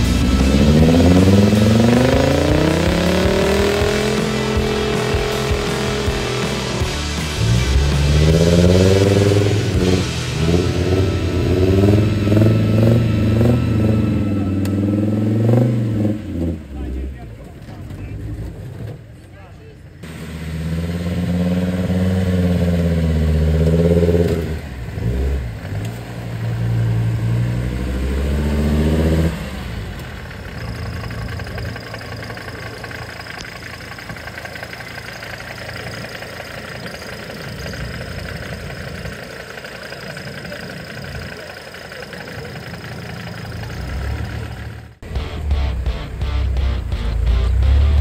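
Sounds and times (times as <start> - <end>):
off-road vehicle engine revving: 0.0 - 48.0
outdoor noise: 0.0 - 48.0.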